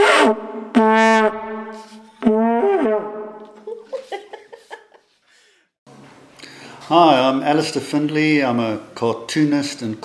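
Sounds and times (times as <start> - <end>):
vuvuzela blasts: 0.0 - 3.4.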